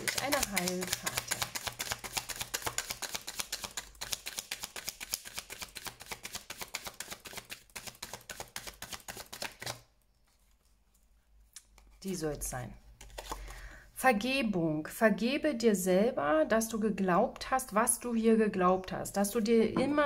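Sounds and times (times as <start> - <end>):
cards being shuffled by hand: 0.0 - 11.1, 13.0 - 13.6.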